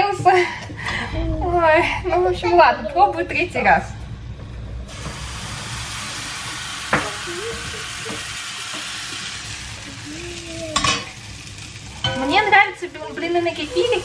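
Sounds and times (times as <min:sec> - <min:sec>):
batter sizzling in a frying pan: 0:04.9 - 0:14.0.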